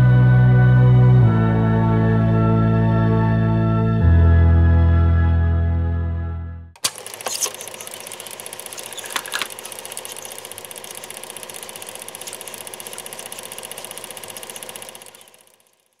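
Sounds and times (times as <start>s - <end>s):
sharp clicks: 6.8s - 15.7s
fast mechanical whirring and clattering: 6.8s - 16.0s.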